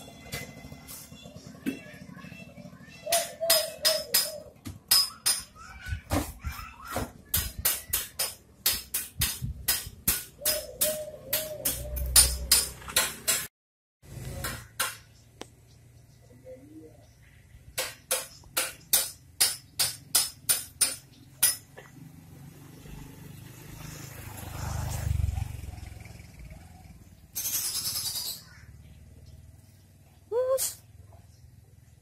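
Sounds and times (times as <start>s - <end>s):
sharp repeating knocks: 7.0s - 13.5s.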